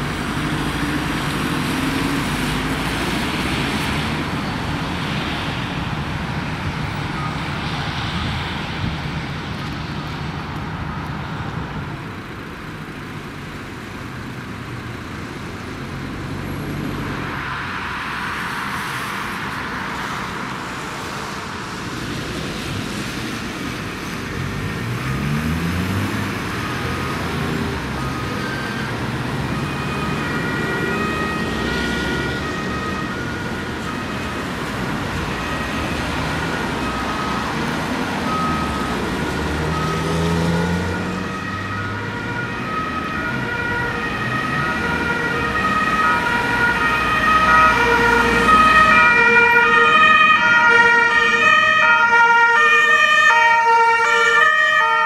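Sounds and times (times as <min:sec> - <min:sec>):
two-tone emergency sirens: 0:00.0 - 0:09.0, 0:25.0 - 0:55.0
road traffic noise: 0:00.0 - 0:55.0.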